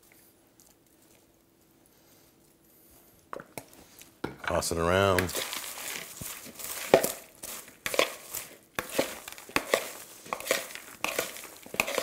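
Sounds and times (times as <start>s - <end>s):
popcorn rustling and crunching: 3.6s - 12.0s
spoon scraping against bowl: 5.3s - 12.0s.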